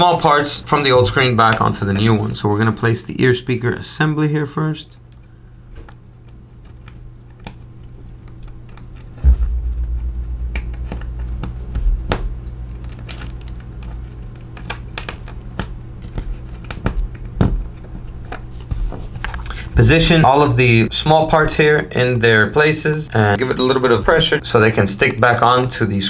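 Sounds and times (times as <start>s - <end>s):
thump: 9.2s - 12.3s
low rumble: 9.2s - 13.0s.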